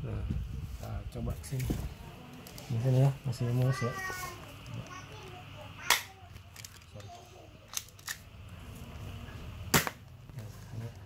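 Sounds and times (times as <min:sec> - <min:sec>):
toy pistol shots: 0:05.8 - 0:06.1, 0:09.7 - 0:10.0.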